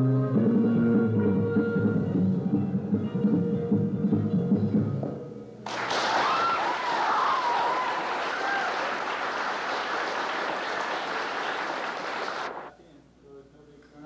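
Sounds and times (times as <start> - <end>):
audience applauding: 5.7 - 12.7
people cheering: 5.7 - 12.7.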